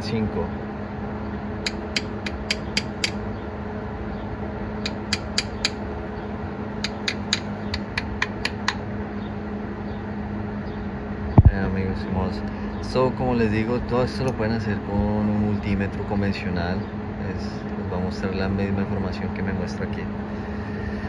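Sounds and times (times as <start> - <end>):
steady low hum: 0.0 - 21.0
pliers tapping on motor housing: 1.6 - 3.2, 4.8 - 5.8.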